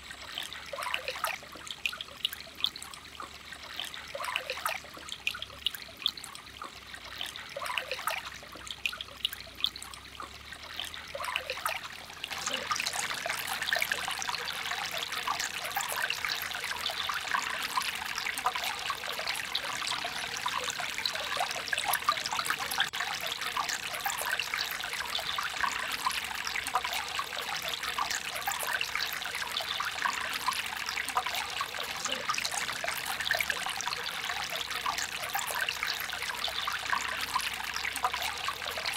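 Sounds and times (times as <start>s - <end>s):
stream trickling over rocks: 0.0s - 38.9s.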